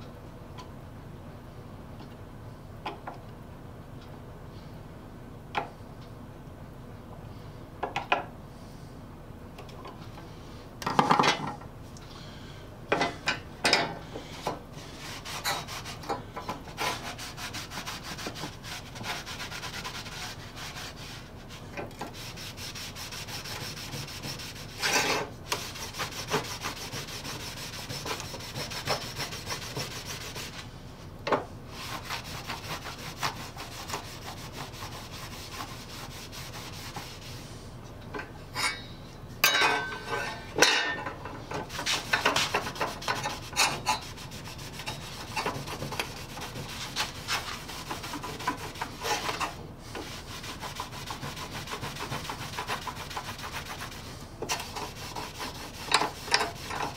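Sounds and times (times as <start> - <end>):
cloth rubbing on saw blade: 14.9 - 16.0, 16.7 - 30.7, 31.7 - 37.5, 41.7 - 56.9.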